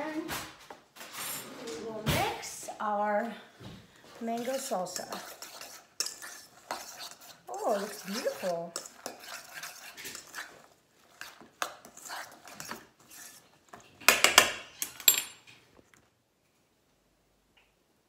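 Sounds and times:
spoon scraping metal bowl: 0:04.2 - 0:14.0.

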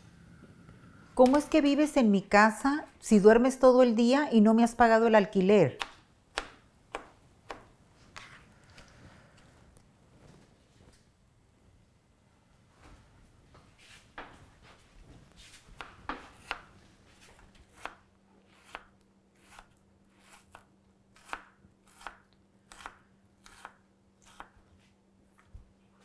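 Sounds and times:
faint steady hum: 0:00.0 - 0:26.0
knife chopping on cutting board: 0:15.8 - 0:16.7, 0:17.7 - 0:18.0, 0:18.6 - 0:24.6.

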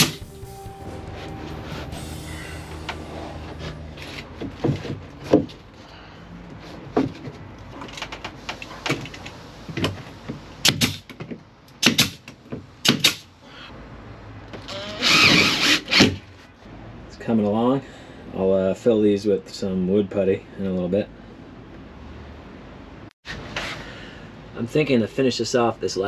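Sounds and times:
nail gun firing: 0:10.6 - 0:11.0, 0:11.8 - 0:12.2, 0:12.8 - 0:13.2
cordless drill running: 0:14.7 - 0:16.0.

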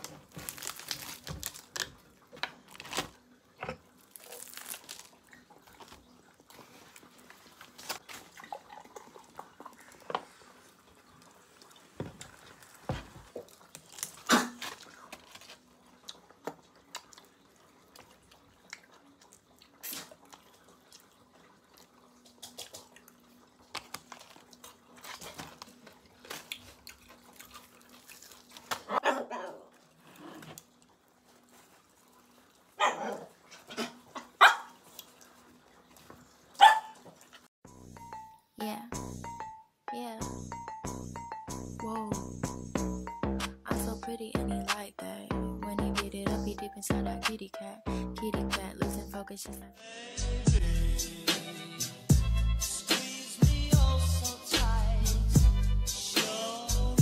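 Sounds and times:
fried chicken crust crunching: 0:00.0 - 0:02.0, 0:03.9 - 0:06.0, 0:23.8 - 0:28.9
paper wrapping rustling: 0:00.0 - 0:03.3, 0:04.0 - 0:08.4, 0:12.2 - 0:15.7, 0:23.7 - 0:28.9
soda fizzing: 0:15.6 - 0:28.8.

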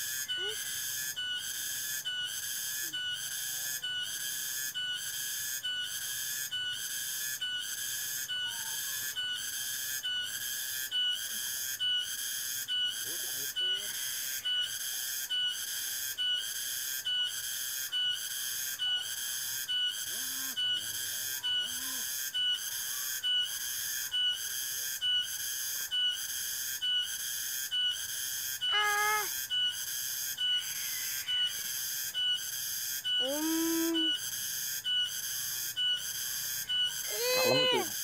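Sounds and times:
short pitched calls: 0:00.0 - 0:01.2, 0:20.1 - 0:22.2, 0:28.4 - 0:34.8, 0:35.5 - 0:38.0
shrill insect chorus: 0:00.0 - 0:38.0.

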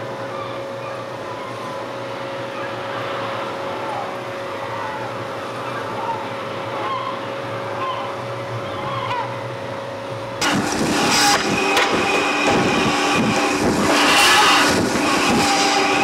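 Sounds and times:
boat engine humming: 0:00.0 - 0:16.0
birds calling: 0:03.8 - 0:09.5.

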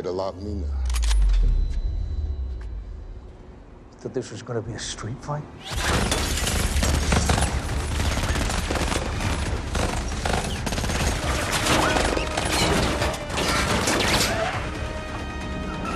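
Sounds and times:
low rumble: 0:00.8 - 0:04.0
rapid rifle gunfire: 0:06.6 - 0:12.1.

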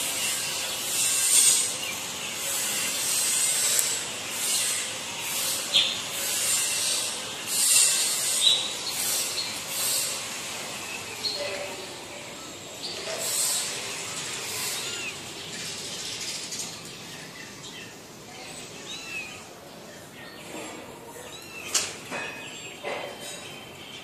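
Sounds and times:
faint high bird chirps: 0:12.3 - 0:24.0.

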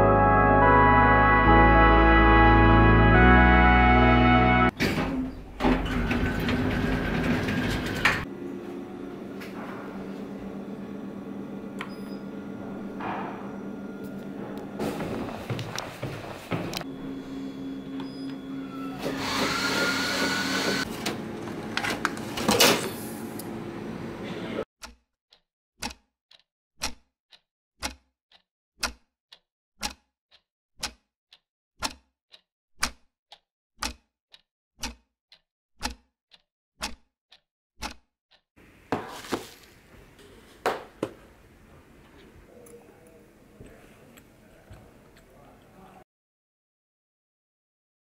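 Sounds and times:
vending machine humming and whining: 0:04.7 - 0:24.6
clock-like ticking: 0:24.8 - 0:38.4.

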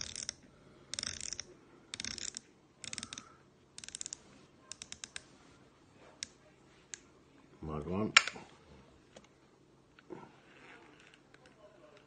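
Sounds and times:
fishing reel ratcheting clicks: 0:00.0 - 0:05.2.

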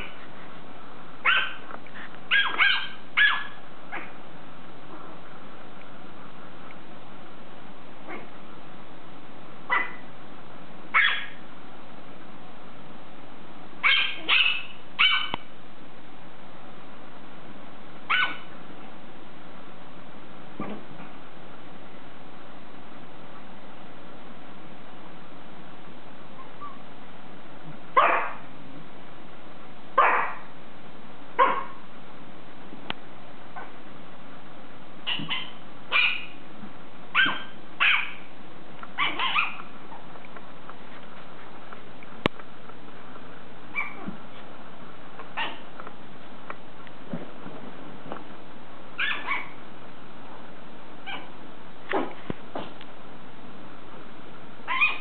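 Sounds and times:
small dogs yapping: 0:01.2 - 0:01.7, 0:02.3 - 0:04.2, 0:08.1 - 0:08.3, 0:09.7 - 0:10.0, 0:10.9 - 0:11.4, 0:13.8 - 0:15.5, 0:18.1 - 0:18.5, 0:28.0 - 0:28.4, 0:30.0 - 0:30.5, 0:31.4 - 0:31.8, 0:35.0 - 0:36.4, 0:37.1 - 0:38.3, 0:39.0 - 0:40.1, 0:43.7 - 0:44.2, 0:45.3 - 0:45.7, 0:49.0 - 0:49.6, 0:51.0 - 0:51.3, 0:54.7 - 0:55.0.

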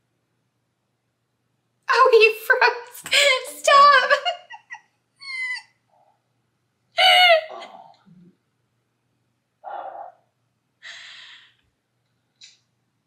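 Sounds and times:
woman laughing: 0:03.2 - 0:05.7, 0:07.0 - 0:07.7.

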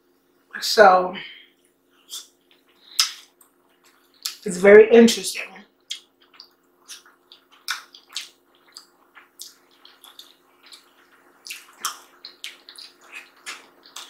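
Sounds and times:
faint steady hum: 0:00.0 - 0:14.0
fingers squishing in stew: 0:02.1 - 0:04.4, 0:05.9 - 0:14.0
mouth clicks and lip smacks: 0:02.1 - 0:04.5, 0:05.9 - 0:14.0.

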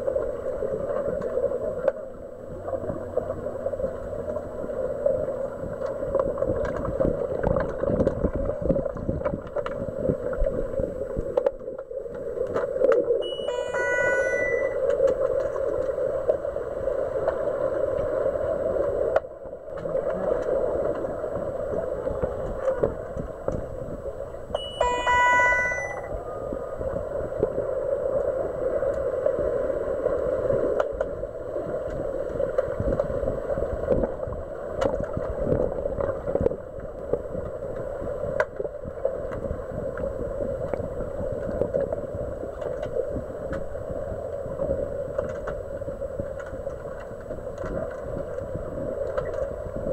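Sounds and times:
muffled underwater hum and rush: 0:00.0 - 0:49.9
sharp clicks and knocks underwater: 0:00.8 - 0:02.1, 0:05.6 - 0:13.2, 0:18.8 - 0:21.2, 0:22.0 - 0:23.9, 0:30.7 - 0:49.9
burst of high stacked tones: 0:13.2 - 0:14.8, 0:24.6 - 0:26.1.

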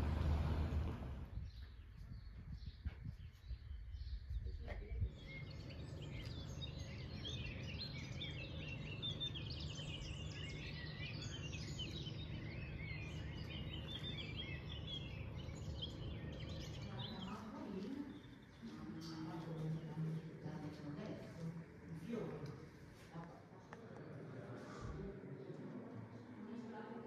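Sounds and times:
steady low hum: 0:00.0 - 0:27.0
small birds chirping: 0:00.8 - 0:27.0.

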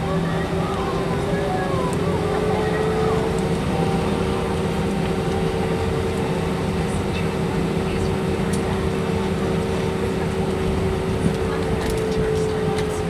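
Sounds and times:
airplane cabin rumble: 0:00.0 - 0:13.0
jet engines humming: 0:00.0 - 0:13.0.

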